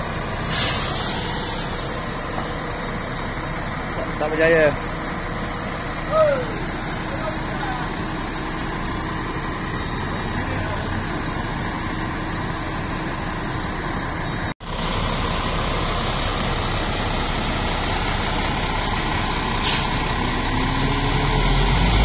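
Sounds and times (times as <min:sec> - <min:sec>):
diesel engine idling: 0:00.0 - 0:22.0
compressed air hiss: 0:00.4 - 0:02.0.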